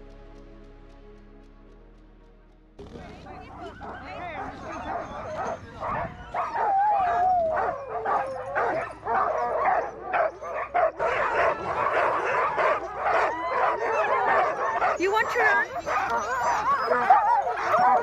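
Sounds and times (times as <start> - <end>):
sled dogs barking: 3.0 - 18.0
dog whine-howl: 3.8 - 18.0.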